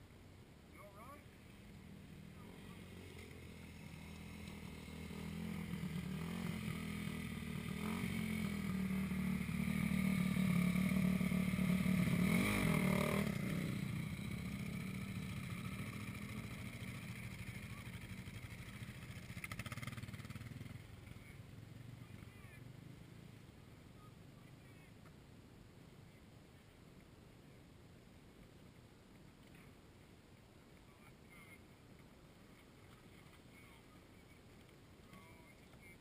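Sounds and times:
dirt bike engine revving: 1.8 - 20.9.

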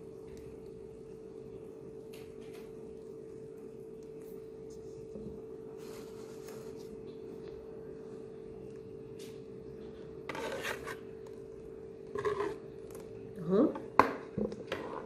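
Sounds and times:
steady background hum: 0.0 - 15.0
soft rustle: 4.1 - 7.2.

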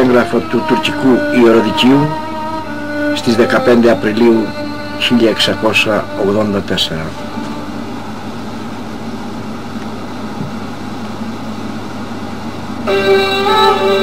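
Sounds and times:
music with long held tones: 0.0 - 9.0, 12.6 - 14.0
steady noise: 0.0 - 14.0.

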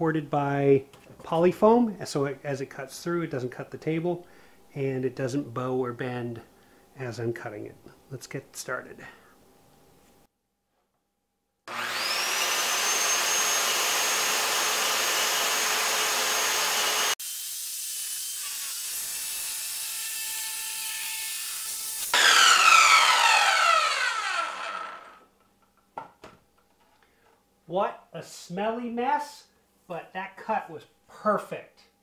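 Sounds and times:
circular saw whining: 11.7 - 17.2, 21.7 - 25.3
saw cutting plastic sheets: 11.7 - 25.3.

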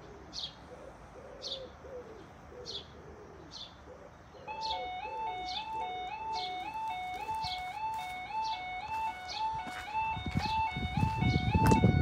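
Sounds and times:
pigeon cooing: 0.0 - 7.7
two-tone warbling alarm: 4.5 - 12.0.

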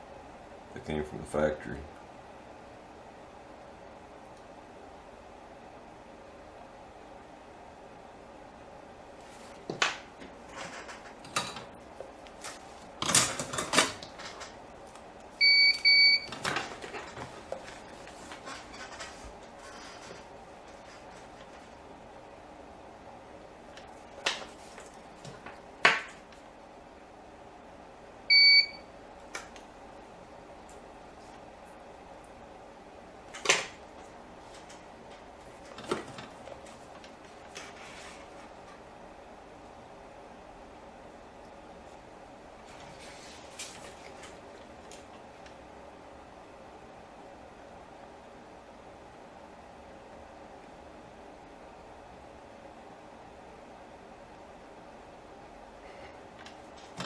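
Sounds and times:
short electronic beeps: 28.3 - 28.8.

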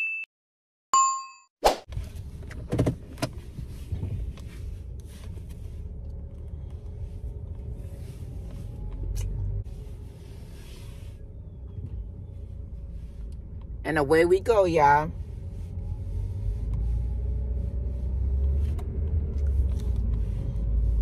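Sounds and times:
car engine rumble: 1.9 - 21.0.

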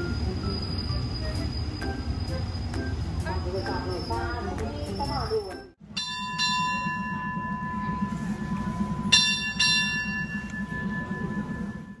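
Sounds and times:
steady low hum: 5.8 - 12.0
bell ringing: 5.9 - 12.0.

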